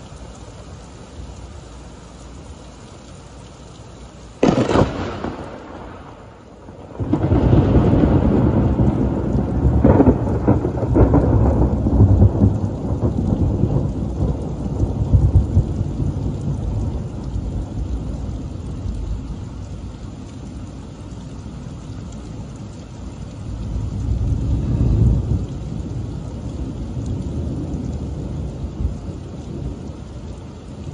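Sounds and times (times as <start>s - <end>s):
rain falling: 0.0s - 30.9s
thunder crack: 4.4s - 17.0s
thunder rolling rumble: 4.4s - 20.1s, 23.4s - 30.9s.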